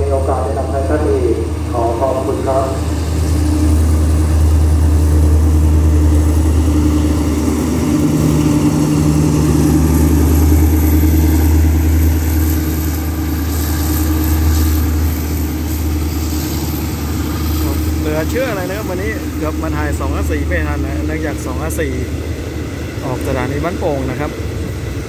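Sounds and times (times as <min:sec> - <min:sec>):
diesel locomotive engine drone: 0:00.0 - 0:25.0.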